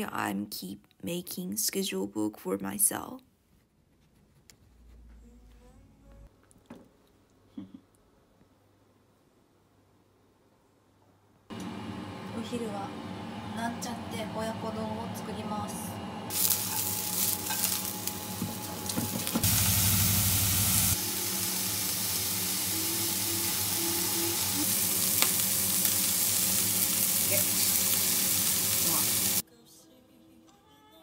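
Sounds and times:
food sizzling in a pan: 16.3 - 29.4.

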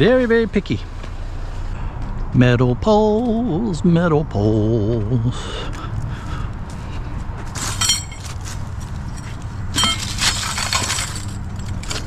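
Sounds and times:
low hum: 0.0 - 12.0
metal poles clanking: 7.6 - 12.0.

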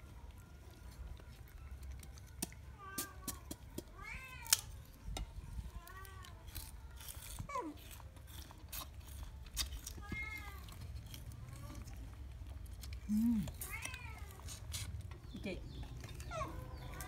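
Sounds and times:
knife peeling sugarcane on board: 2.3 - 4.8, 6.2 - 11.9, 12.8 - 15.4.

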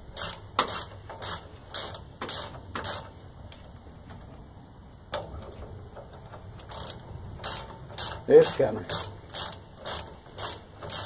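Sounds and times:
hand ratchet clicking: 0.1 - 3.1, 6.0 - 11.0.

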